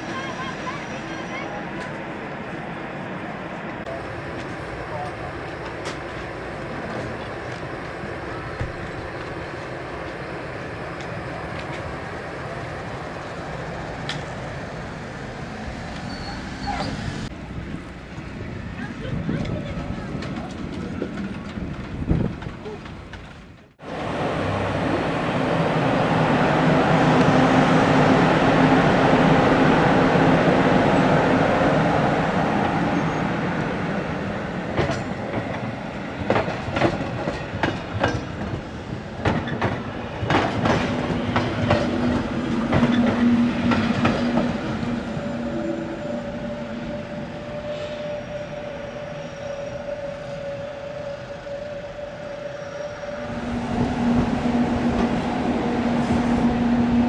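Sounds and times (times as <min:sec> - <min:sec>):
train wheels clicking over rail joints: 0:34.7 - 0:45.0
electric train motors humming: 0:41.7 - 0:57.0.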